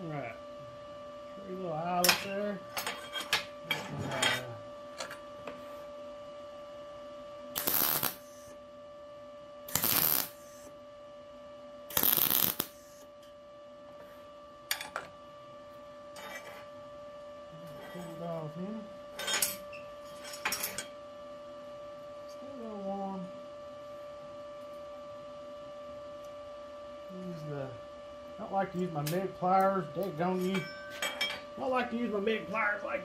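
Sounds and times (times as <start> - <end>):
faint steady hum: 0.0 - 33.0
welder tack welding bursts: 7.6 - 8.5, 9.7 - 10.7, 11.9 - 13.0.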